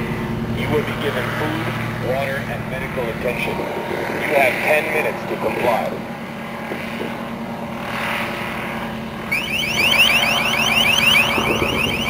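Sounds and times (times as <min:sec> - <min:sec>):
drone engine and rotor: 0:00.0 - 0:12.0
rising chirp warning tone: 0:09.2 - 0:12.0.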